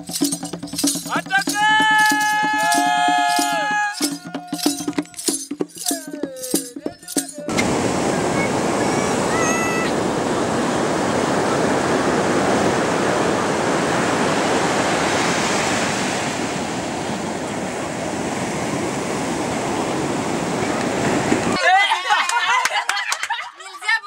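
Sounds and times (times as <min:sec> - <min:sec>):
ocean surf on sandy beach: 0:07.4 - 0:22.3.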